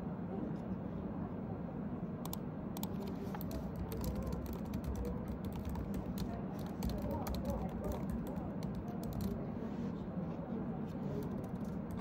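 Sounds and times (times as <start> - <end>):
low background hum: 0.0 - 12.0
typing on computer keyboard: 2.3 - 9.4, 11.1 - 12.0.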